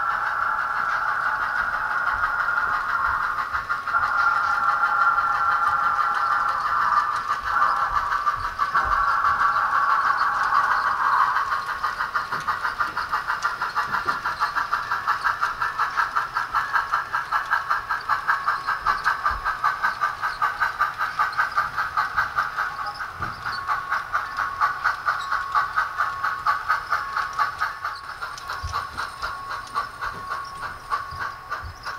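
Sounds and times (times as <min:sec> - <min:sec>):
steam exhaust chuffing: 0:00.0 - 0:31.9
steam whistle from small speaker: 0:03.9 - 0:05.7.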